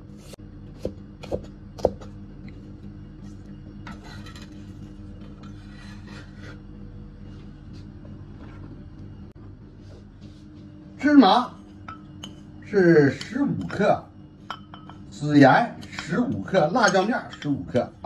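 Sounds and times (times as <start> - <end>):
steady low hum: 0.0 - 18.0
knife chopping on cutting board: 0.2 - 2.1
blade scraping onion across board: 5.4 - 6.7.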